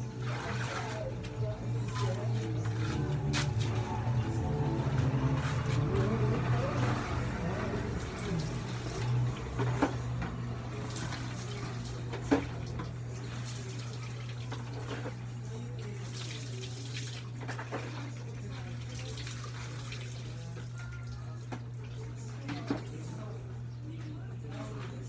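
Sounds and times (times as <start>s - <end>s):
water poured and splashing: 0.0s - 4.1s, 10.7s - 15.2s, 16.0s - 21.0s
low steady hum: 0.0s - 25.0s.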